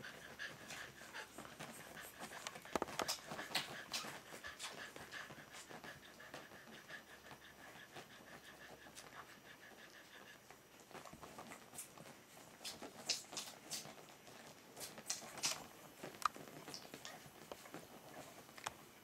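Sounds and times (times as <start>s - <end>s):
dog panting softly: 0.0s - 19.0s
puppies suckling: 0.0s - 19.0s
wet smacking clicks: 14.8s - 17.0s.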